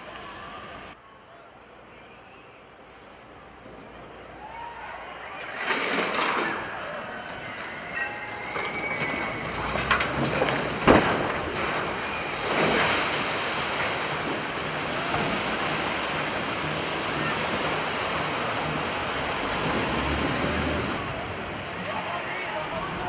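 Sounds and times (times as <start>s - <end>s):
ship hull crashing into water: 5.4s - 21.7s
wave rushing and splashing: 8.1s - 23.0s.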